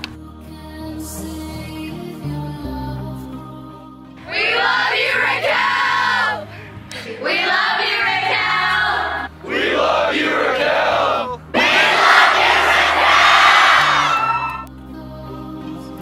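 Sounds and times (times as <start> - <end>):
soft background music: 0.0 - 16.0
teenagers shouting in unison: 4.3 - 6.5, 7.1 - 14.6.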